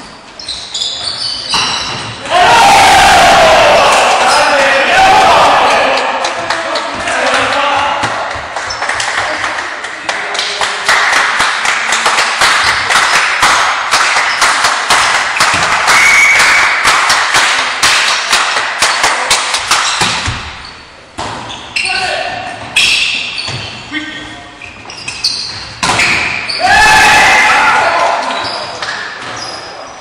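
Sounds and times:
rhythmic clapping: 5.9 - 20.0.

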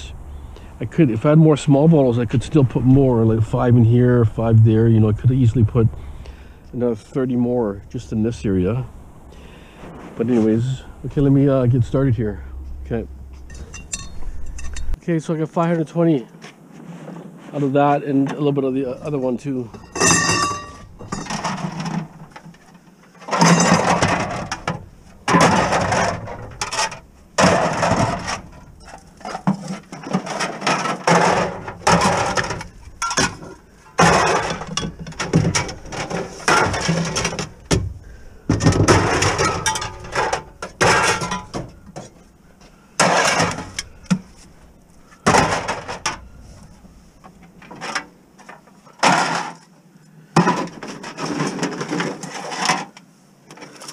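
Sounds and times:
glass bottles and cans clattering: 13.5 - 15.0, 19.7 - 22.6, 23.2 - 37.8, 38.5 - 42.2, 43.0 - 44.4, 45.2 - 46.3.

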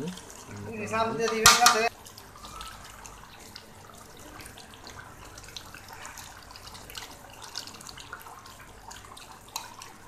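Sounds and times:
curry bubbling in a wok: 0.0 - 10.0
spatula stirring gravy: 0.0 - 10.0.

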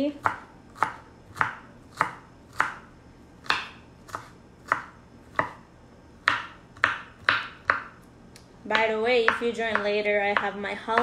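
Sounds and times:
knife chopping on wooden board: 0.2 - 5.6, 6.2 - 8.0, 8.7 - 11.0.

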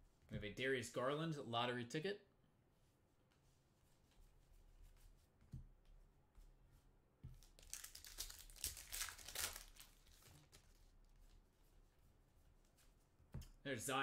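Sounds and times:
foil pack tearing and crinkling: 7.6 - 10.8.

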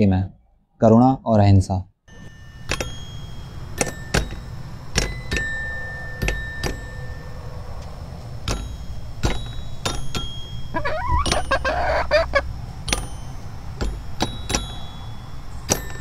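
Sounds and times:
toy xylophone notes struck: 2.1 - 7.4, 8.5 - 16.0
hen clucking: 10.7 - 12.5.

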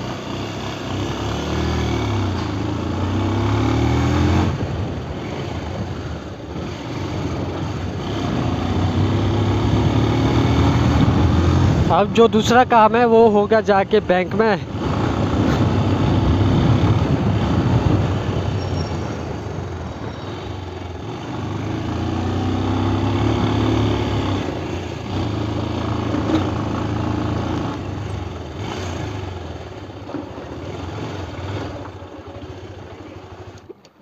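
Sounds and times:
wind and road noise: 0.0 - 34.0
motorcycle engine running: 14.6 - 33.8.

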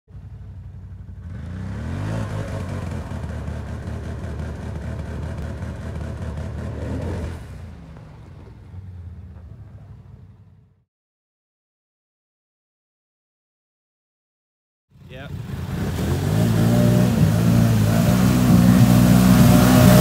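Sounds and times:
atv engine revving: 0.2 - 10.8, 15.0 - 20.0.

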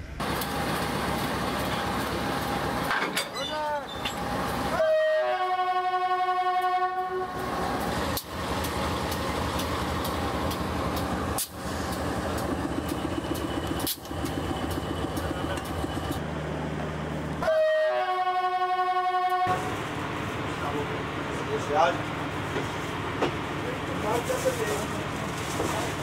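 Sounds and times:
engine and rail yard noise: 0.0 - 26.0
locomotive horn chord: 4.7 - 7.5, 17.4 - 19.8.

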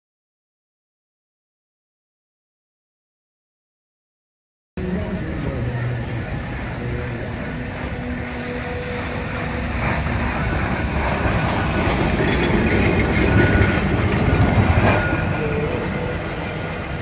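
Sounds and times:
tram wheels rumbling on rails: 4.8 - 17.0.

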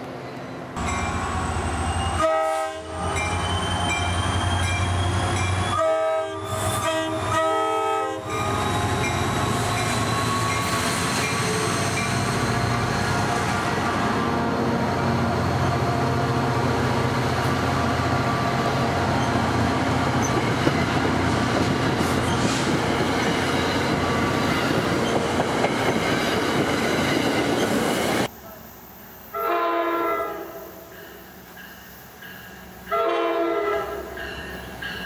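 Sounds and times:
train wheels rushing on rail: 0.0 - 29.3
distant train horn: 1.6 - 3.4, 5.1 - 10.8, 29.3 - 31.0, 32.8 - 34.3.

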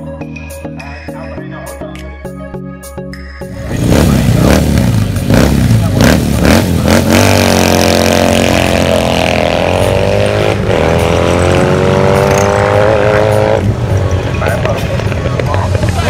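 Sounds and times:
motorcycle engine accelerating: 3.5 - 16.0.

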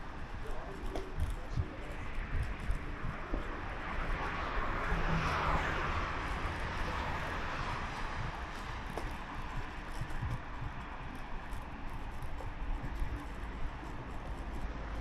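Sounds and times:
outdoor street ambience: 0.0 - 15.0
motor vehicle passing by: 2.4 - 9.2.

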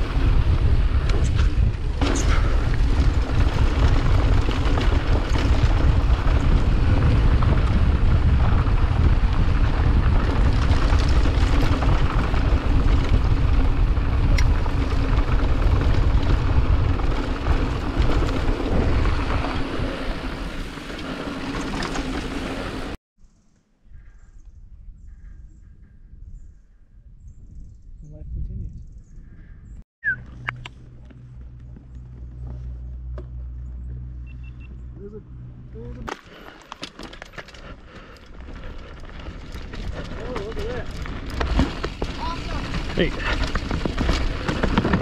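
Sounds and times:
wind buffeting microphone: 0.0 - 20.8, 23.9 - 32.4.

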